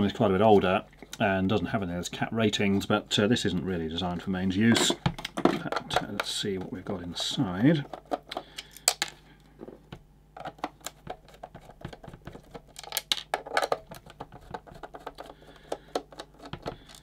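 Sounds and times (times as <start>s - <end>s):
plastic case being handled: 2.5s - 17.0s.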